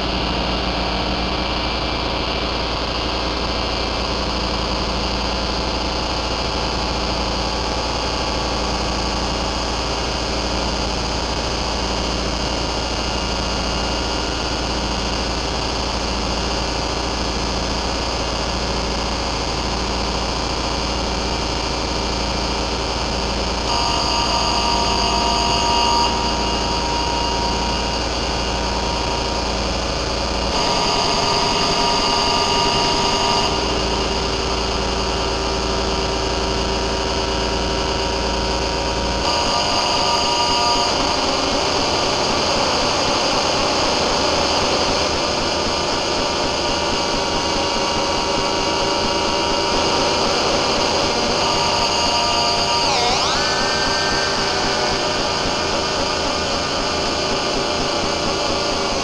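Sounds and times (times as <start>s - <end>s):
noise synthesizer drone: 0.0s - 59.0s
slow pulsing figure: 51.1s - 57.6s
bright high tones: 52.4s - 56.2s.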